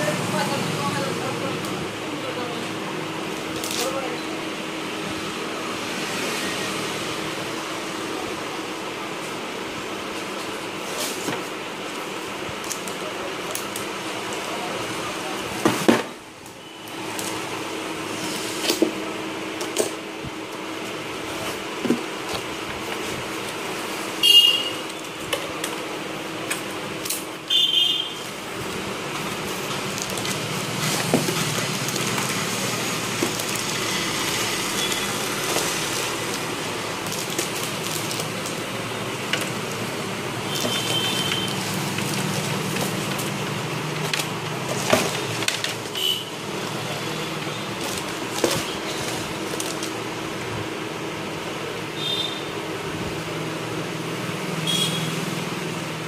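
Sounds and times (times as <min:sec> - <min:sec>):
packaging rustling and crinkling: 0:28.3 - 0:50.4.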